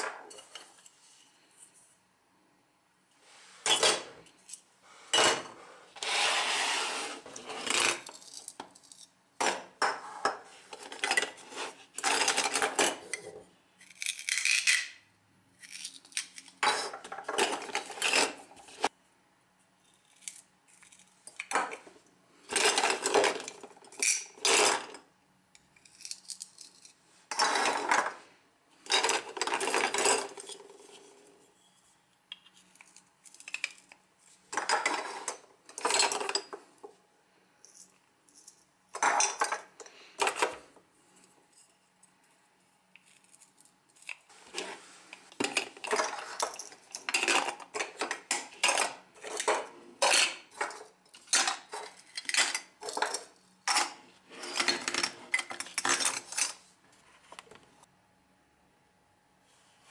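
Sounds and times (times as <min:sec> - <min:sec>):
plastic toy pieces clattering in bowl: 0:07.6 - 0:09.1, 0:12.0 - 0:14.9, 0:15.6 - 0:18.4, 0:22.5 - 0:25.0, 0:28.9 - 0:30.8, 0:34.5 - 0:36.6, 0:45.4 - 0:56.6.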